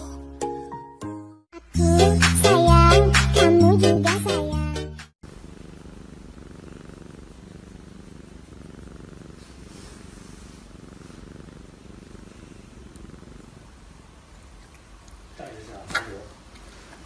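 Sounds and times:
cat purring: 0:05.2 - 0:17.0.

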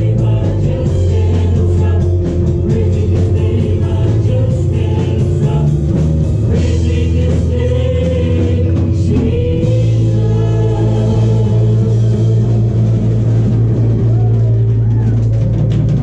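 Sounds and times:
women singing: 0:00.0 - 0:05.9, 0:06.5 - 0:13.0
drums beating: 0:00.0 - 0:16.0
guitar: 0:00.0 - 0:16.0.

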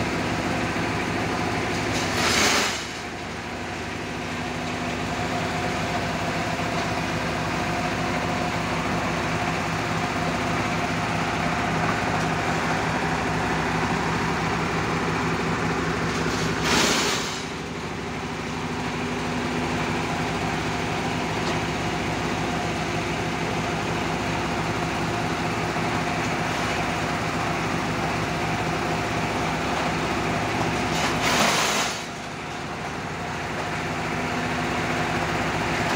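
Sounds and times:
engine-driven machinery running: 0:00.0 - 0:35.9
loud bursts of noise: 0:16.4 - 0:17.8.

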